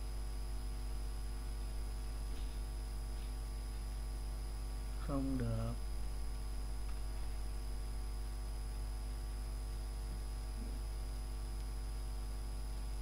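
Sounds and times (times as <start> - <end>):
faint high whine: 0.0 - 13.0
steady electrical hum: 0.0 - 13.0.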